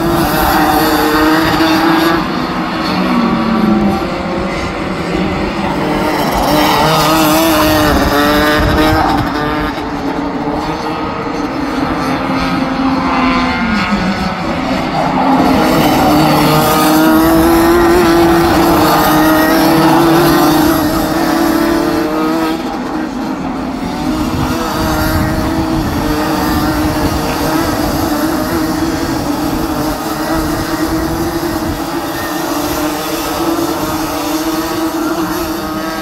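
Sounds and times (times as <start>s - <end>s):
kart engines racing: 0.0s - 36.0s.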